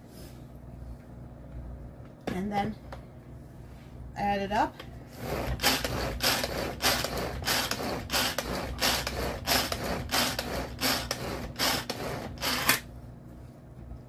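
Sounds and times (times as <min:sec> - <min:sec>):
pull-cord chopper blades churning: 0:05.2 - 0:12.8.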